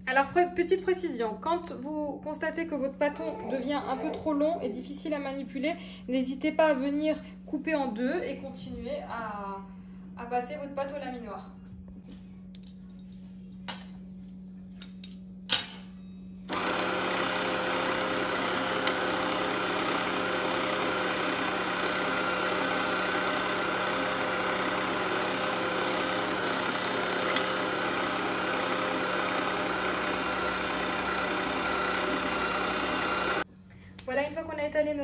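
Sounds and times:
pasta machine motor humming: 0:16.5 - 0:33.5.

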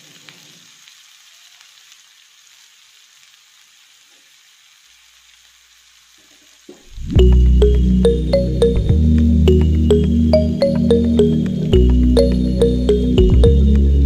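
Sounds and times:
food frying in oil: 0:00.0 - 0:10.3.

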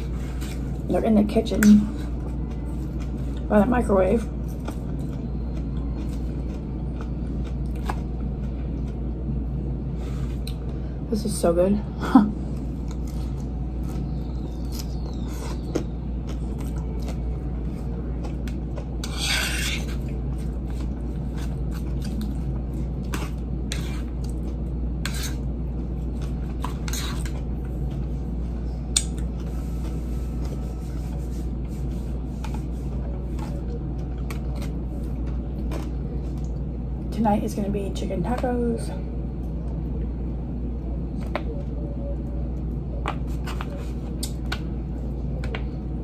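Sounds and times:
steady low hum: 0:00.0 - 0:46.0
chewing with crisp crunches: 0:04.2 - 0:09.1, 0:12.4 - 0:28.2
fork scraping in a bowl: 0:19.0 - 0:20.1, 0:23.1 - 0:24.1, 0:25.0 - 0:25.5, 0:26.6 - 0:27.4.

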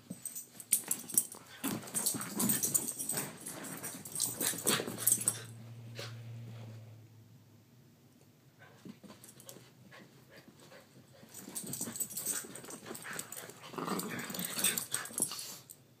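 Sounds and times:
dogs scuffling on carpet: 0:00.1 - 0:05.4
dogs play growling: 0:00.2 - 0:06.3, 0:09.3 - 0:15.7.

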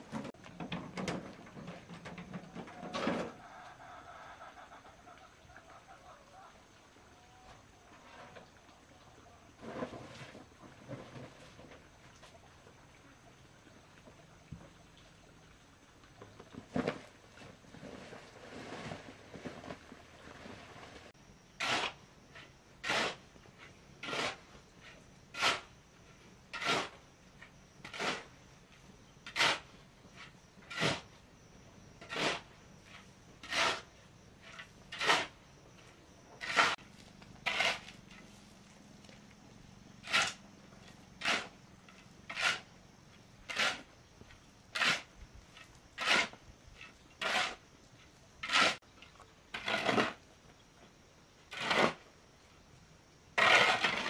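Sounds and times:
shovel scraping through gravel: 0:21.6 - 0:25.8, 0:26.5 - 0:27.0, 0:27.9 - 0:28.3, 0:29.3 - 0:31.1, 0:32.0 - 0:35.4, 0:36.4 - 0:38.4, 0:40.0 - 0:40.5, 0:41.2 - 0:41.6, 0:42.3 - 0:42.7, 0:43.5 - 0:43.9, 0:44.8 - 0:46.4, 0:47.2 - 0:47.6, 0:48.4 - 0:48.8, 0:49.5 - 0:50.2, 0:51.5 - 0:52.0, 0:53.4 - 0:54.0.

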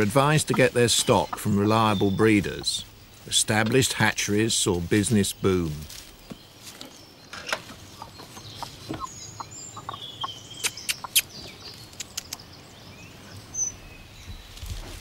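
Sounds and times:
hens clucking: 0:00.0 - 0:05.8, 0:07.6 - 0:11.4.

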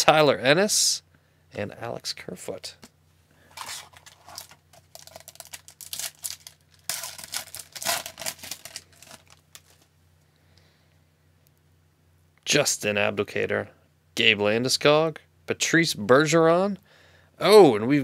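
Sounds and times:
foil wrapper crinkling and tearing: 0:03.5 - 0:09.9.

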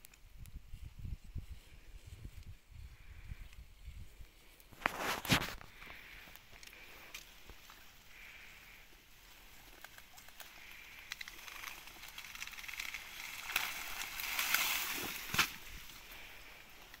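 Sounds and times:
reed stalks rustling: 0:00.0 - 0:17.0.

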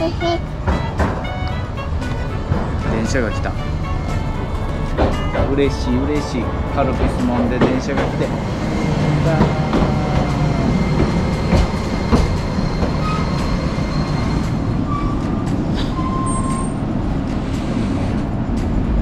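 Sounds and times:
tram rolling on rails: 0:00.0 - 0:19.0
wheel squeals: 0:08.1 - 0:18.2.

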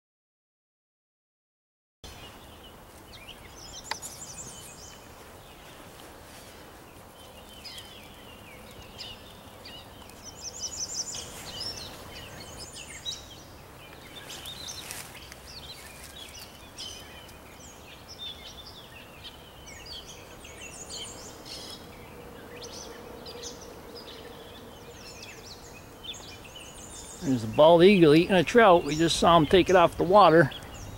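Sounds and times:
songbirds singing and chirping: 0:02.0 - 0:30.9
outdoor background rush: 0:02.1 - 0:30.9.

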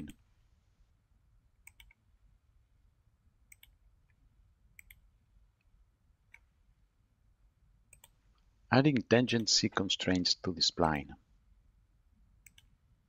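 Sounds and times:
faint computer mouse clicks: 0:01.6 - 0:02.0, 0:03.5 - 0:03.8, 0:04.8 - 0:05.0, 0:07.9 - 0:08.5, 0:12.4 - 0:12.8.

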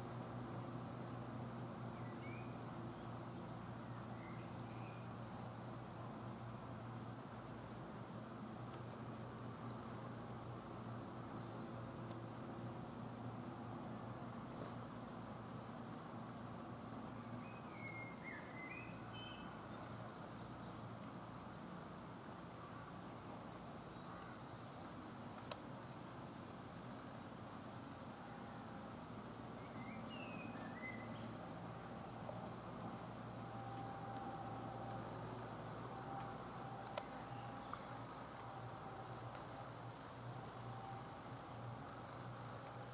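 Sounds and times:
low woodland background noise: 0:00.0 - 0:42.9
bird chirps: 0:17.0 - 0:21.2, 0:29.6 - 0:31.5.

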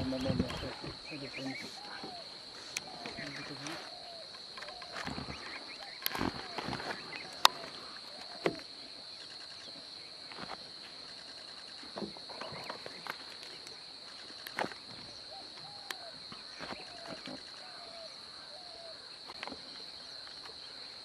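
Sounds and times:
insect drone: 0:00.0 - 0:21.0.

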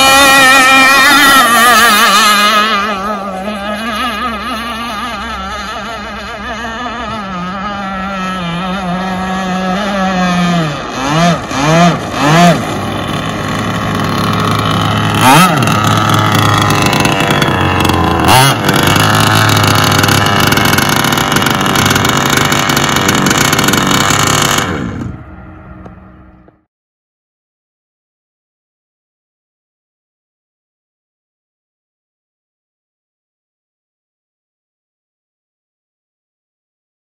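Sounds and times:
two-stroke engine revving: 0:00.0 - 0:26.7.

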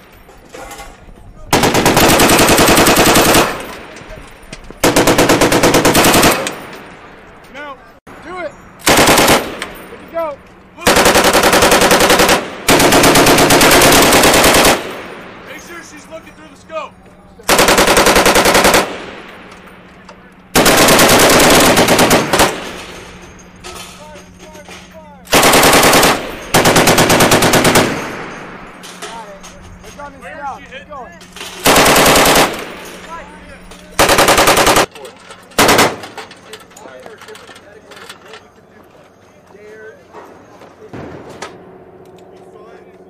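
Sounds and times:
machine gun firing bursts: 0:01.5 - 0:03.9, 0:04.8 - 0:06.7, 0:08.8 - 0:09.8, 0:10.8 - 0:15.3, 0:17.5 - 0:19.3, 0:20.5 - 0:23.1, 0:25.3 - 0:28.6, 0:31.6 - 0:32.9, 0:34.0 - 0:34.9, 0:35.6 - 0:36.2
short metallic clinks: 0:22.8 - 0:25.1.

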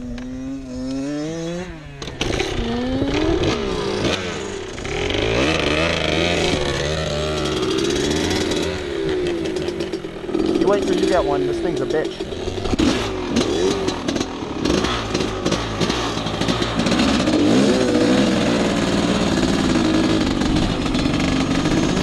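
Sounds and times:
dirt bike engine revving: 0:00.0 - 0:22.0
second dirt bike running: 0:00.0 - 0:22.0.

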